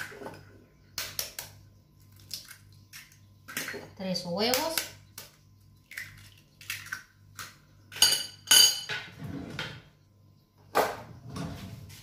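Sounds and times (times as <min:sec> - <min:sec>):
egg cracking on glass bowl: 0:04.4 - 0:08.8.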